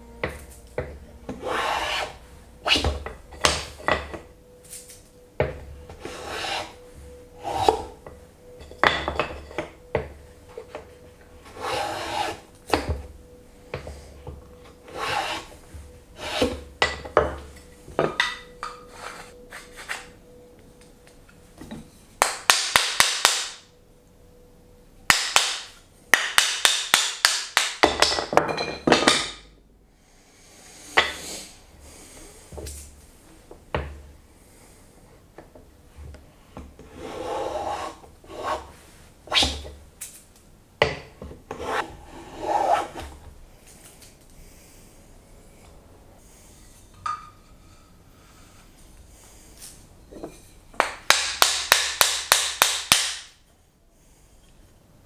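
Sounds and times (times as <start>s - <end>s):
hand tools working hardwood: 0.2s - 4.3s, 5.4s - 6.8s, 7.4s - 8.1s, 11.4s - 13.1s, 13.7s - 20.1s, 36.8s - 39.8s, 40.8s - 43.2s.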